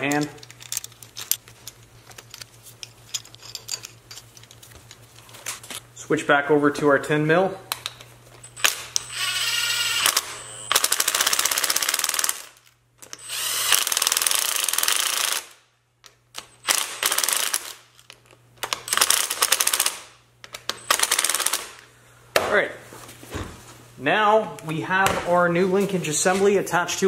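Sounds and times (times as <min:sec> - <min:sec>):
motor whine: 0:09.0 - 0:10.8.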